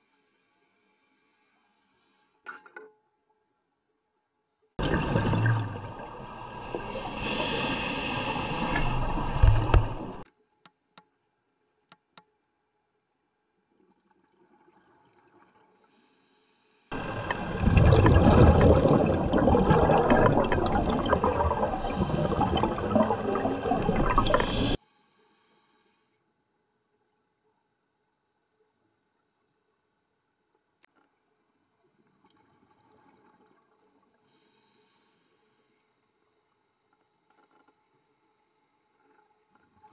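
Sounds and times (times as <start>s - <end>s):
underwater bubbling rush: 4.8s - 10.2s, 16.9s - 24.8s.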